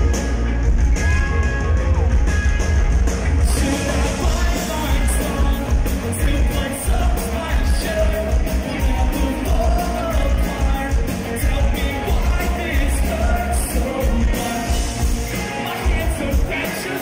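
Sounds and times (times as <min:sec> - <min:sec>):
live rock band playing: 0:00.0 - 0:17.0
man singing: 0:03.4 - 0:17.0.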